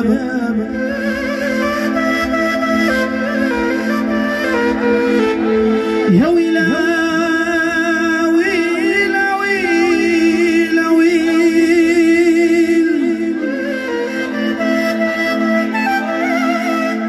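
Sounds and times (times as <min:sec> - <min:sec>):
man singing into a microphone: 0:00.0 - 0:01.9, 0:06.0 - 0:14.5
held instrumental accompaniment: 0:00.0 - 0:17.0.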